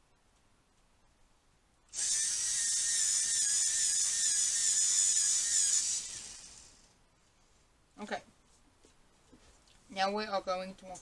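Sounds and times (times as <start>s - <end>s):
electric pencil sharpener whirring: 1.9s - 6.9s.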